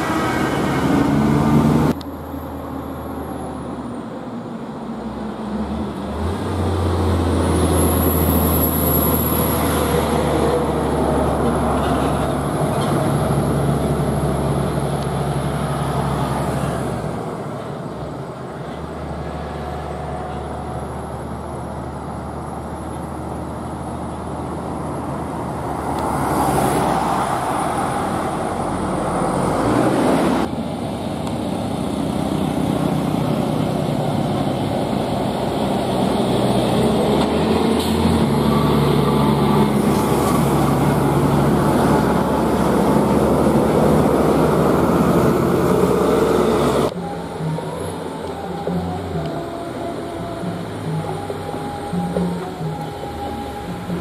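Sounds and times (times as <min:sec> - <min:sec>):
vehicle passing: 0:00.0 - 0:03.8, 0:23.4 - 0:54.0
diesel truck engine droning: 0:00.0 - 0:54.0
road noise: 0:00.0 - 0:54.0.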